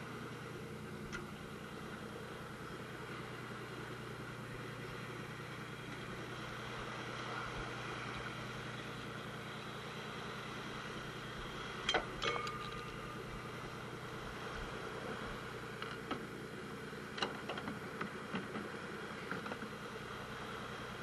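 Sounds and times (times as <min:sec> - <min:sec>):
boat engine running: 0:00.0 - 0:21.0
sharp metallic clinks: 0:11.9 - 0:13.3.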